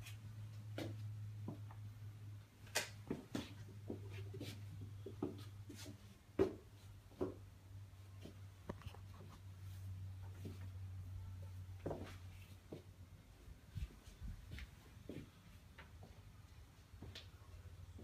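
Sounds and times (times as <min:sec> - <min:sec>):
footsteps: 0:11.8 - 0:12.9, 0:13.7 - 0:16.2.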